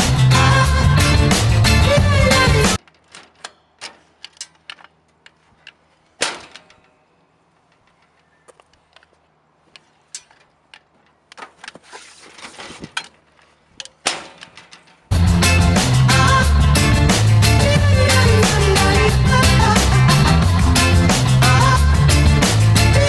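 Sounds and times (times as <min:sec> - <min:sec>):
metal locker door clack: 0:14.0 - 0:15.0.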